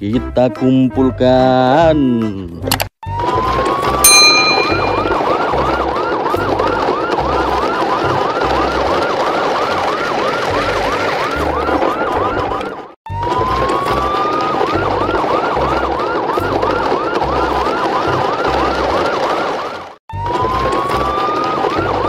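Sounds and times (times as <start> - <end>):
electronic siren wailing and yelping: 10.7 - 22.0.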